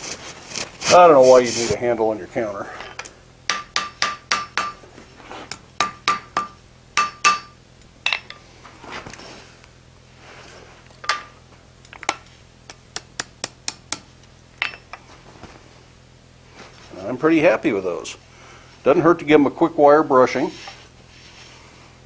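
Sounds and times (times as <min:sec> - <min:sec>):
metal clinking on anvil: 0:02.8 - 0:04.8, 0:05.8 - 0:08.4, 0:11.0 - 0:11.4, 0:13.7 - 0:15.0
hammer striking iron on anvil: 0:03.0 - 0:04.8, 0:05.5 - 0:08.4, 0:11.0 - 0:11.4, 0:12.0 - 0:15.0.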